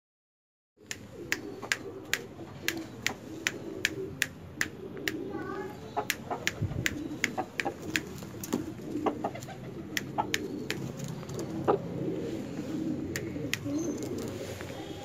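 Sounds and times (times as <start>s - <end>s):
finger snaps: 0.8s - 5.3s, 6.0s - 8.1s, 9.9s - 10.9s, 13.1s - 13.8s
pigeons cooing: 0.8s - 15.0s.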